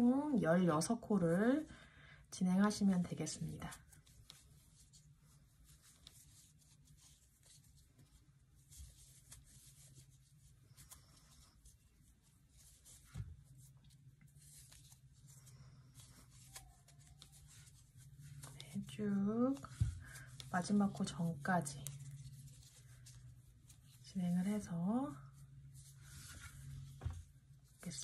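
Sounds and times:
crochet hook scratching yarn: 3.7 - 19.8
soft thump: 27.0 - 27.3.

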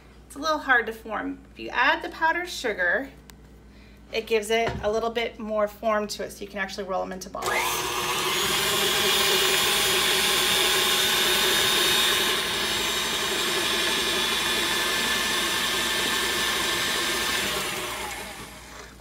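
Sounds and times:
electric mixer motor whine: 7.4 - 19.0.

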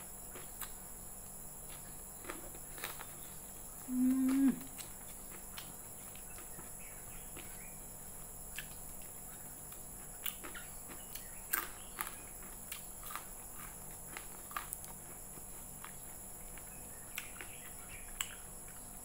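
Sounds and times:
wet chewing clicks and smacks: 8.5 - 19.0.

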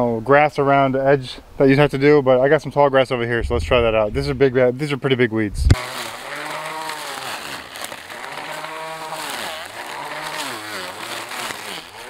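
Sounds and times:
electric weed eater whirring: 5.7 - 12.0.

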